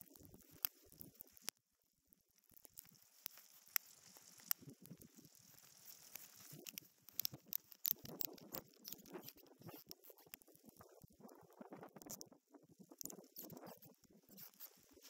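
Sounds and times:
scratchy rustling: 0:02.6 - 0:11.4, 0:12.8 - 0:15.0
ratchet strap clicks and scrapes: 0:05.5 - 0:11.0, 0:12.9 - 0:15.0.

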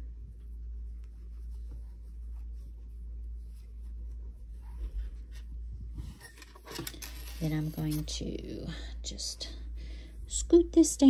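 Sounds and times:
yarn rustling between fingers: 0:00.0 - 0:08.6
steady low hum: 0:00.0 - 0:11.0.

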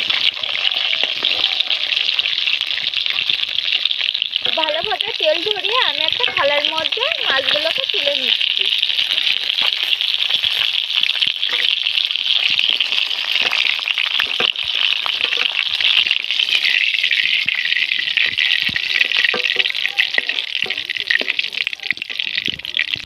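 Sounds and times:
fish sizzling in hot oil: 0:00.0 - 0:23.0.

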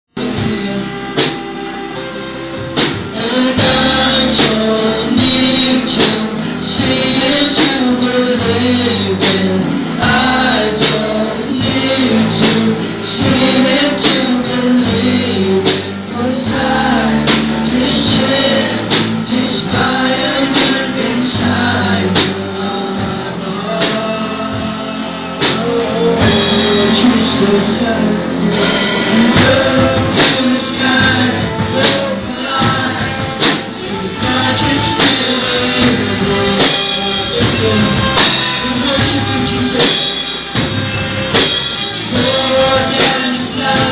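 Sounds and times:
drum kit: 0:00.1 - 0:43.9
man and woman singing: 0:00.2 - 0:01.4, 0:02.8 - 0:40.4, 0:41.3 - 0:43.9
electric guitars: 0:00.2 - 0:43.9.

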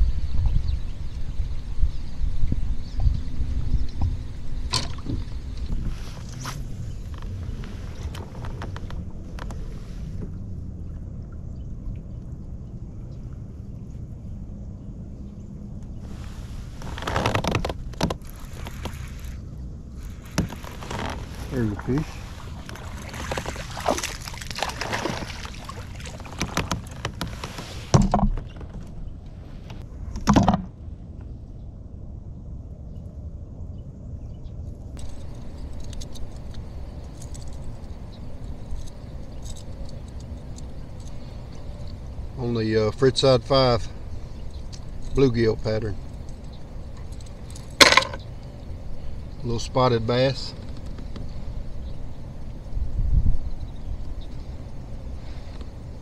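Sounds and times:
wind buffeting microphone: 0:00.0 - 0:16.8, 0:17.5 - 0:56.0
fishing hooks clicking and rattling: 0:35.0 - 0:41.2, 0:46.1 - 0:48.2.

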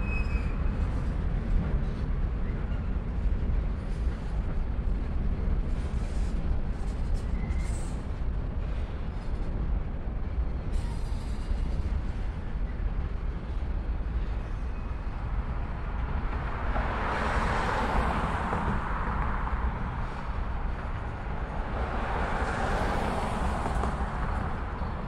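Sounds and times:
train wheels rumbling on rail: 0:00.0 - 0:25.0
car passing: 0:16.0 - 0:25.0.

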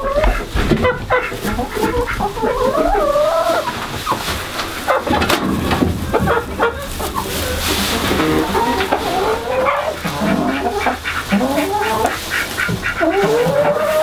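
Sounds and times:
chickens clucking and squawking: 0:00.0 - 0:14.0
long drawn-out chicken call: 0:06.2 - 0:14.0.

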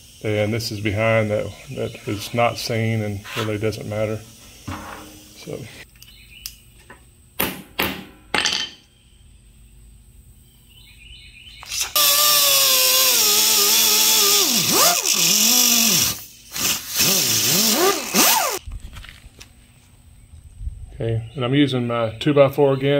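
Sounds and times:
grinder whining on metal: 0:11.6 - 0:18.6.

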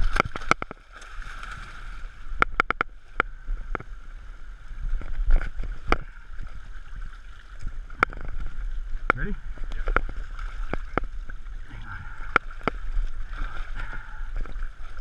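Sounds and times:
sharp clicks and knocks: 0:02.4 - 0:03.9.

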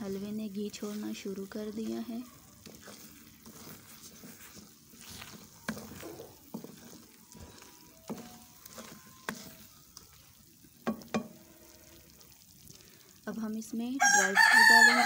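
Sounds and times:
wooden spoon scraping pan: 0:00.0 - 0:12.7
soft sizzle: 0:00.0 - 0:15.0
spoon knocking on pan: 0:02.6 - 0:10.2, 0:10.8 - 0:11.5.

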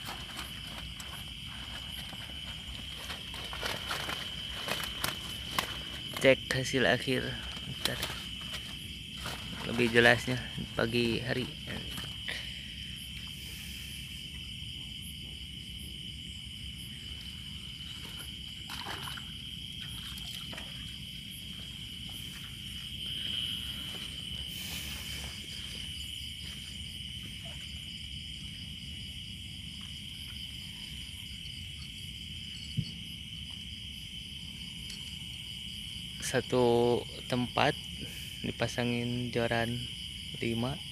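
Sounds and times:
high-pitched insect trill: 0:00.0 - 0:40.9
night insects droning: 0:00.0 - 0:40.9.

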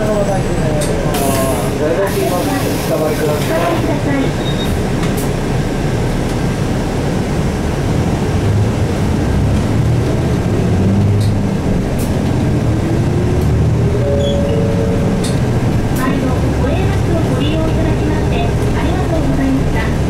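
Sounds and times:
bus diesel engine running: 0:00.0 - 0:20.0
road noise: 0:00.0 - 0:20.0
rising whine: 0:13.8 - 0:16.7.

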